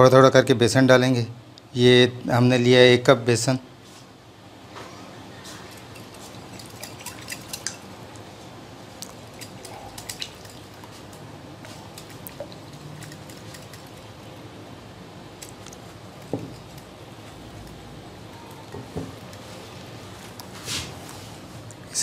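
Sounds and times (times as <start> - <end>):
whisk clinking against glass bowl: 5.7 - 7.8.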